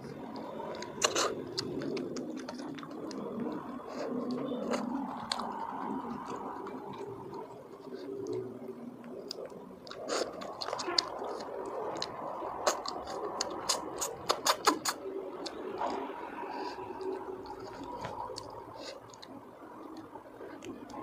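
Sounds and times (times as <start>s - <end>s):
chewing and sucking snails: 0.0s - 21.0s
sharp clicks and smacks: 9.2s - 16.0s.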